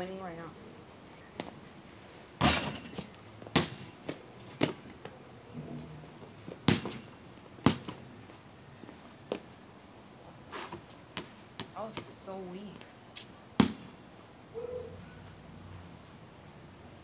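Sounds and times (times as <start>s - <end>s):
basketball bouncing on concrete: 3.4s - 4.9s, 6.6s - 8.0s, 11.2s - 12.2s, 13.6s - 14.0s.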